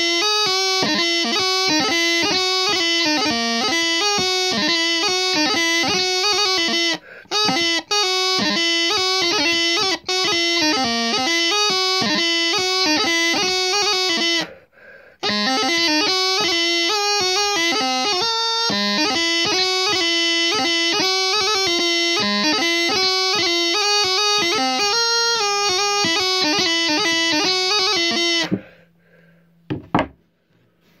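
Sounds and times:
practice chanter playing a tune: 0:00.0 - 0:14.5, 0:15.2 - 0:28.7
short knocks: 0:29.7 - 0:30.2.

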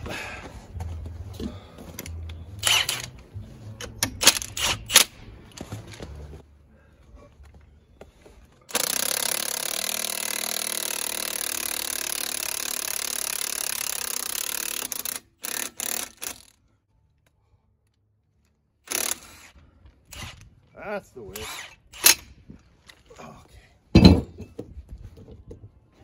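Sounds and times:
cordless impact wrench hammering: 0:02.0 - 0:03.2, 0:08.7 - 0:16.5, 0:18.9 - 0:19.6.

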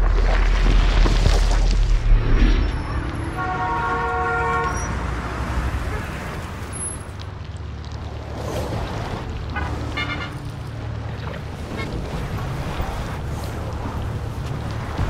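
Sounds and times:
deep low rumble: 0:00.0 - 0:05.4
low street hum: 0:00.0 - 0:15.0
car horn: 0:02.7 - 0:06.2, 0:09.5 - 0:10.5.

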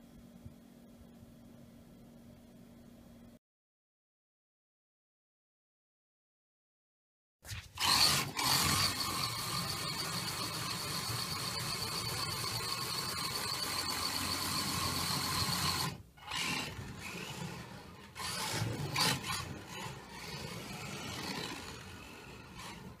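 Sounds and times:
toy car motor whirring: 0:07.8 - 0:23.0
tyres rasping on concrete: 0:16.2 - 0:23.0.

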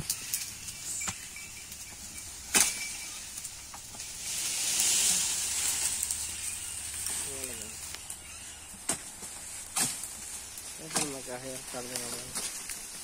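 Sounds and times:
leafy branches rustling: 0:00.0 - 0:13.0
sharp crack of branch: 0:02.4 - 0:03.2, 0:03.8 - 0:13.0.

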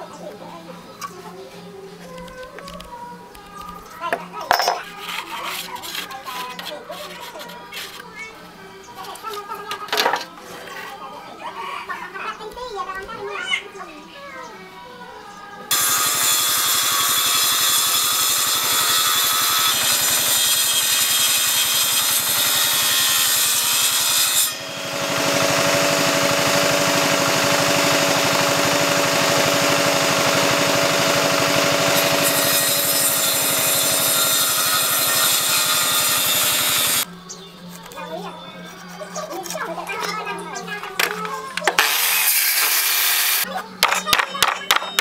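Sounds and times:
circular saw cutting wood: 0:15.7 - 0:37.1, 0:41.7 - 0:43.5
machine running hum: 0:24.5 - 0:34.0.

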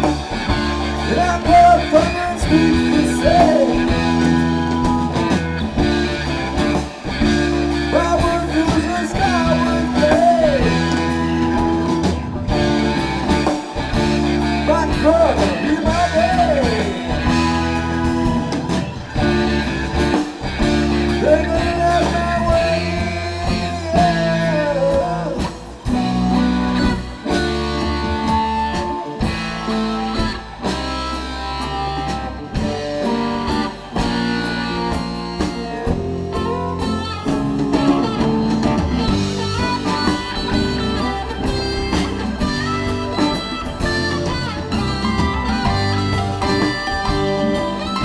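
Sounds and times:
drums: 0:00.0 - 0:48.0
electric guitars: 0:00.0 - 0:48.0
keyboards: 0:00.0 - 0:48.0.

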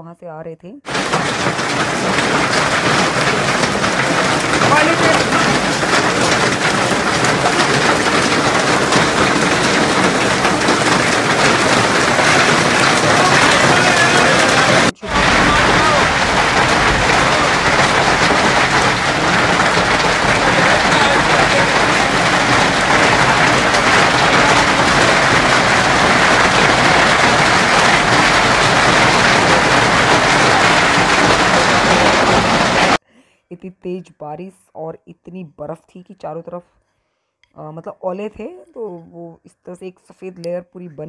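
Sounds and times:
heavy rain and hail pelting ground: 0:00.9 - 0:33.0.

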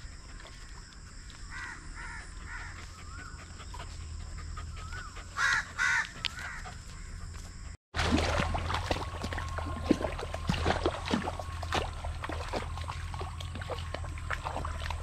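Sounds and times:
steps through wet grass: 0:08.0 - 0:15.0.

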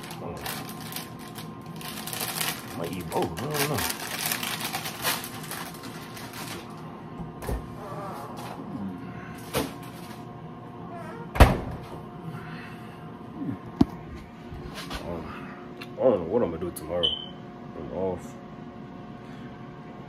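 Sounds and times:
plastic packaging crinkling: 0:00.0 - 0:06.8
refrigerator door shutting: 0:11.3 - 0:12.0.

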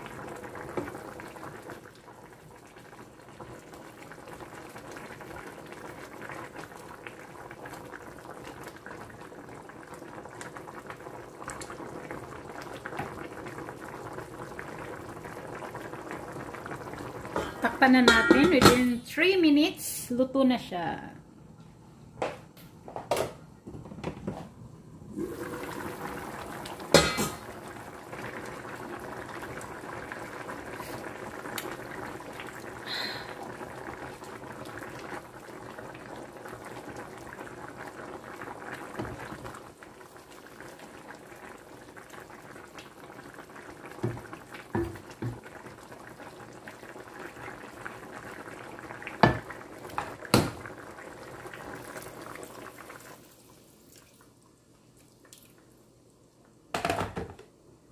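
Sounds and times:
soup bubbling at a boil: 0:00.0 - 0:18.8, 0:24.6 - 0:56.8
metal cookware clanks: 0:18.0 - 0:18.9.

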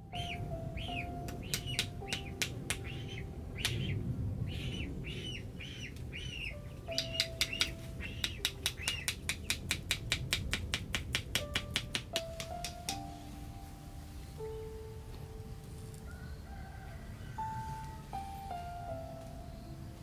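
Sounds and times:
bird chirping: 0:00.0 - 0:10.3
rapid sharp taps: 0:01.3 - 0:02.9, 0:07.0 - 0:13.0.

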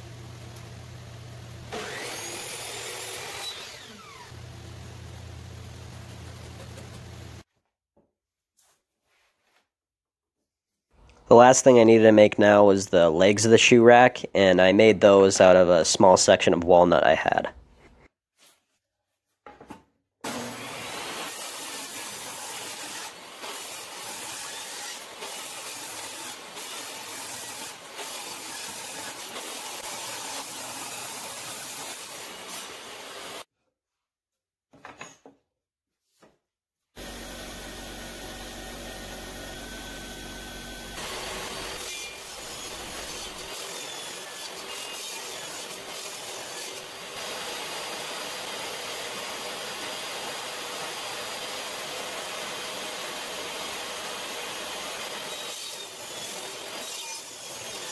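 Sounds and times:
table saw ripping wood: 0:01.7 - 0:04.4, 0:20.2 - 0:33.5, 0:37.0 - 0:57.9.

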